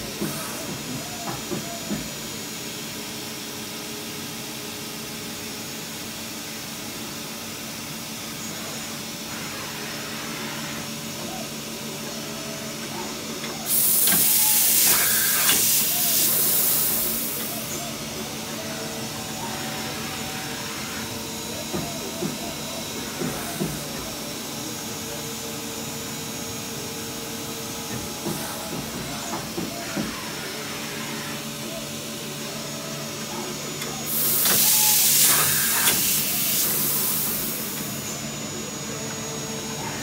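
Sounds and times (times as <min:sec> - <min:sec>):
machine hum with tones: 0:00.0 - 0:40.0
loud hiss: 0:13.7 - 0:17.6, 0:34.1 - 0:38.0.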